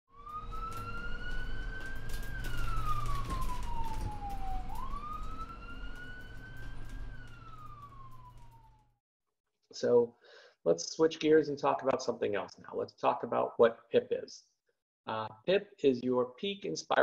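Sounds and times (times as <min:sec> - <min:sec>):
ambulance siren wailing: 0:00.1 - 0:09.0.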